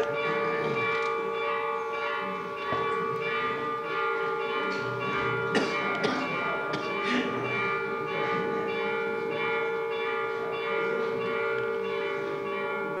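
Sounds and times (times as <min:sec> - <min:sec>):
church bells ringing: 0:00.0 - 0:13.0.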